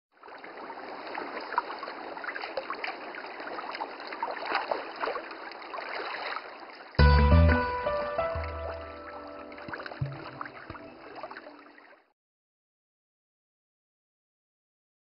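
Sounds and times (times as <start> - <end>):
water trickling and bubbling: 0.2 - 7.0, 8.1 - 12.1.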